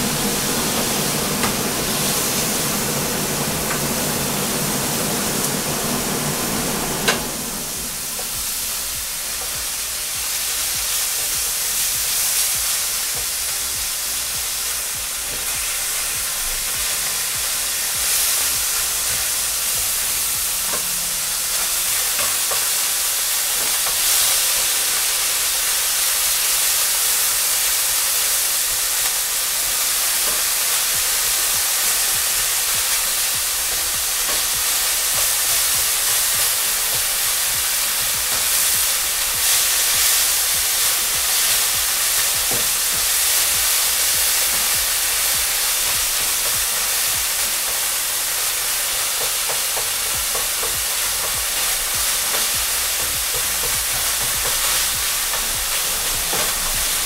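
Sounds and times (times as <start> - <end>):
low hum: 0.0 - 10.6
meat sizzling in a pan: 0.0 - 57.0.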